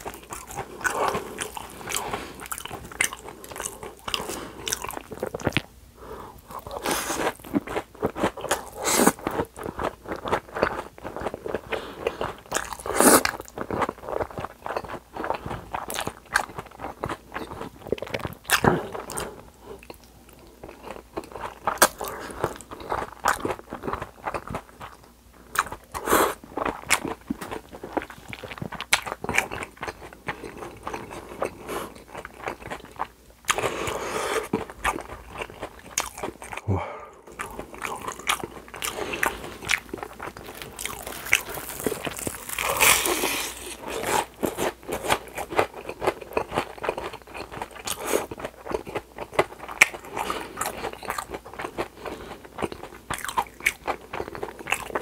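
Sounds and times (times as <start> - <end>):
crunching fried cutlet: 37.4 - 55.0.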